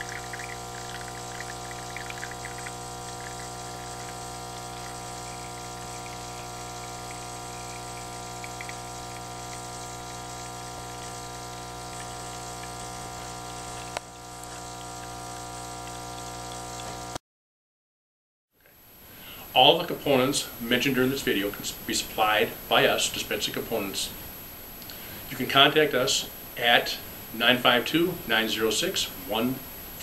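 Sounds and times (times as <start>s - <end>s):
espresso machine pump buzzing: 0.0s - 17.2s.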